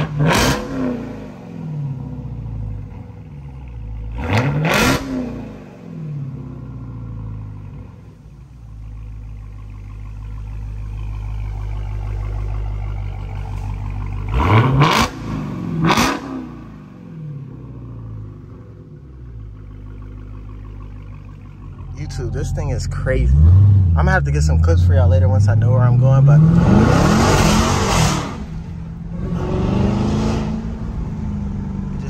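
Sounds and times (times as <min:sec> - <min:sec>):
engine revving: 0:00.0 - 0:07.8, 0:10.3 - 0:32.0
loud car engine idling: 0:01.9 - 0:26.2.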